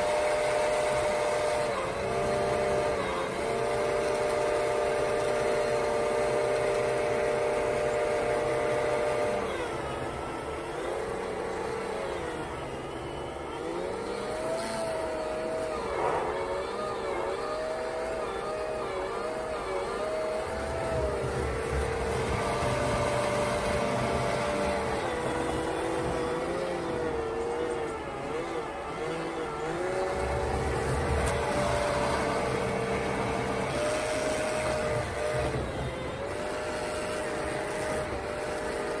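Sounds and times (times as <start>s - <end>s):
electric motor whining: 0.0s - 39.0s.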